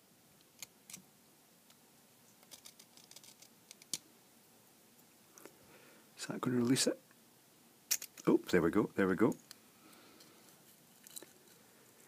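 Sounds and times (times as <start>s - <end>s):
small metal clicks and scrapes: 2.4s - 4.0s, 10.2s - 11.6s.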